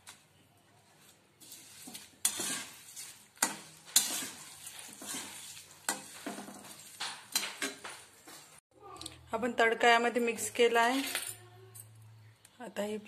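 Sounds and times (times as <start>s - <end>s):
spatula scraping metal pan: 1.4s - 8.0s
oil sizzling: 1.4s - 8.6s.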